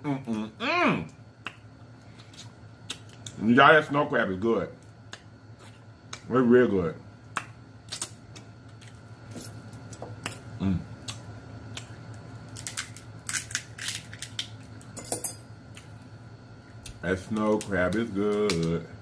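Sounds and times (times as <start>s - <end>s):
crab shell cracking: 11.0s - 14.9s.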